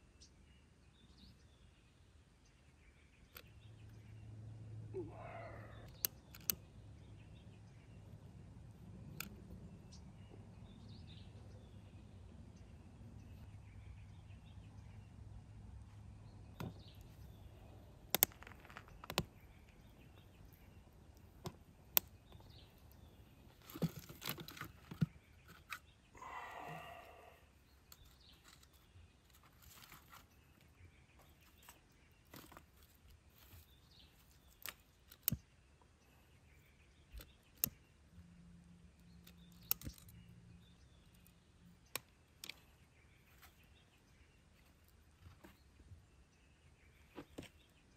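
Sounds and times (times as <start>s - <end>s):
bird calling: 4.9s - 8.0s, 24.6s - 28.9s
dry sticks clicking and snapping: 5.8s - 6.7s, 9.0s - 9.6s, 16.6s - 25.9s, 31.5s - 35.6s, 37.0s - 37.9s, 38.9s - 40.3s, 41.0s - 42.8s.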